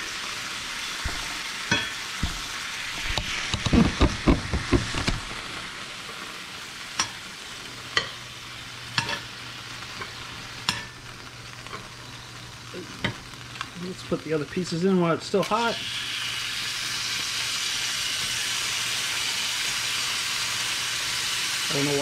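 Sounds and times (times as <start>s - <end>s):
meat sizzling in a skillet: 0.0s - 22.0s
metal tongs clicking on pan: 7.0s - 7.2s, 9.0s - 9.3s, 10.0s - 11.0s.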